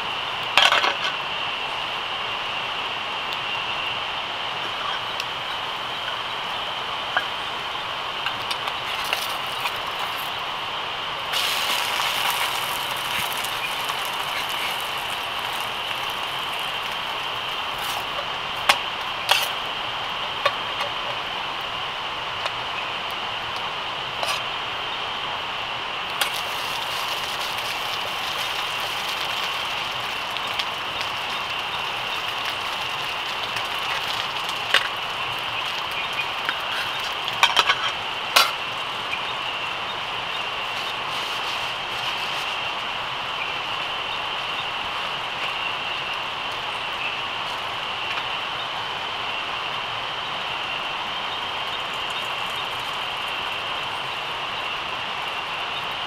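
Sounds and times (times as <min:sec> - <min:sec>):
night insects chirring: 0:04.9 - 0:18.3, 0:21.5 - 0:56.0
gas stove burner hissing: 0:11.1 - 0:18.1.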